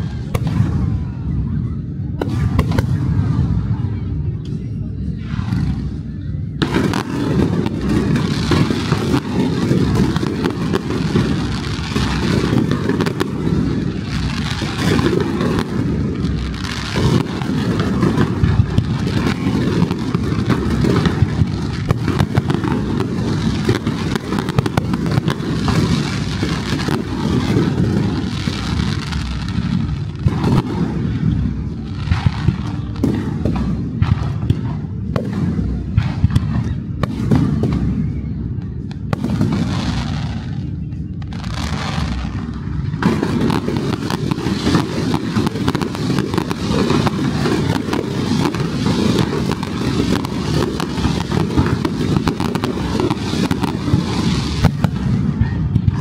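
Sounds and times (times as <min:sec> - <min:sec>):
fireworks booming and crackling: 0:00.0 - 0:56.0
sharp firework bangs: 0:41.2 - 0:56.0.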